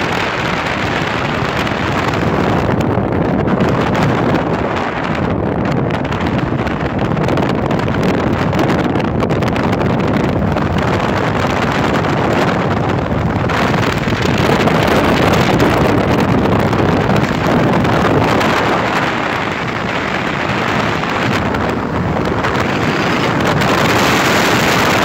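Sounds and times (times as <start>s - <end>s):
wind rushing over microphone: 0.0s - 25.0s.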